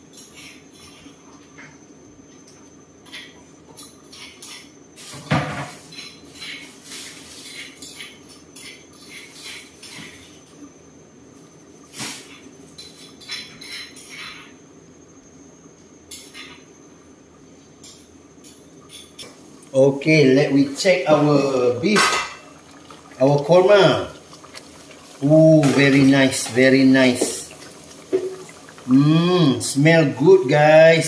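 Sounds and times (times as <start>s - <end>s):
dishes and pots clinking: 12.7s - 14.6s, 21.8s - 29.6s.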